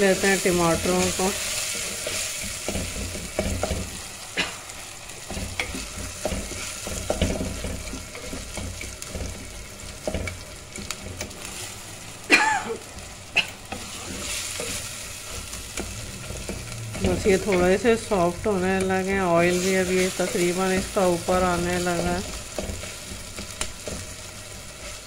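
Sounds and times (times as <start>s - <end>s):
oil sizzling: 0.0s - 25.0s
wooden spatula scraping pot: 0.8s - 11.7s, 13.6s - 25.0s.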